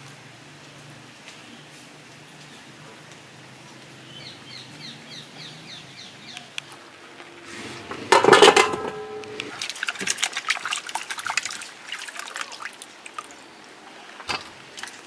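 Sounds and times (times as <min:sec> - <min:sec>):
potatoes splashing into pot of water: 0:09.6 - 0:13.4.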